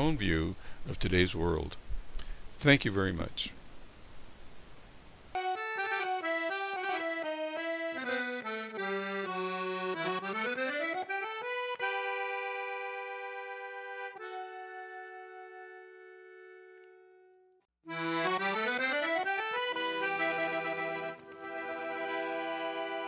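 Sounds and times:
instrumental music: 5.3 - 23.0.

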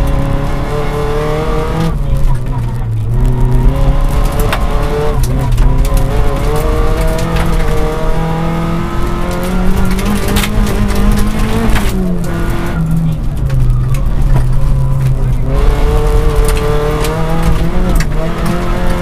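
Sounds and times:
rally car engine revving: 0.0 - 19.0
clicks and knocks from rough road: 1.7 - 19.0.

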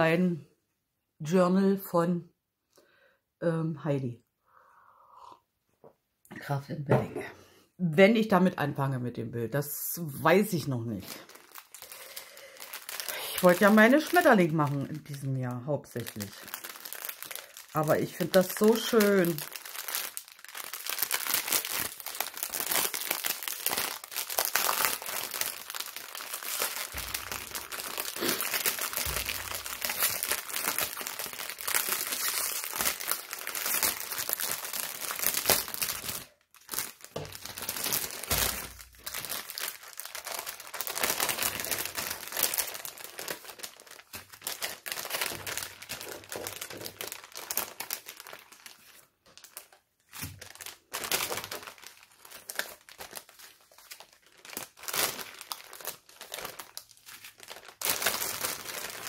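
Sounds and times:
plastic bags crinkling: 10.2 - 59.0.

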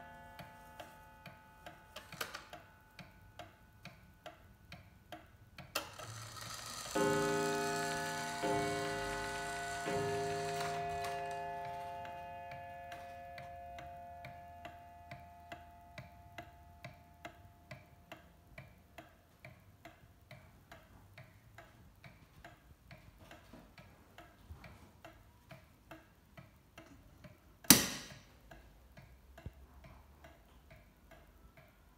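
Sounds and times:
mantel clock ticking: 0.0 - 31.9
clock strike ringing: 5.9 - 17.0
loud sharp knock: 27.7 - 28.2.

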